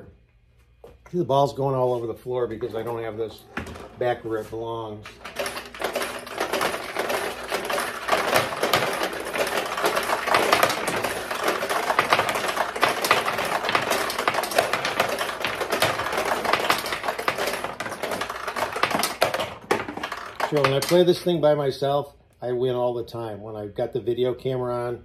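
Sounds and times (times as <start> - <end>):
pachinko balls rattling: 4.9 - 21.2.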